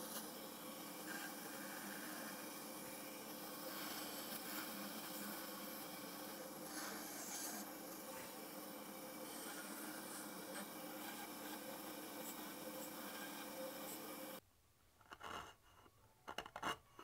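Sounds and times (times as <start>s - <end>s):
band saw cutting wood: 0.0s - 14.4s
chisel scraping wood: 15.1s - 17.0s.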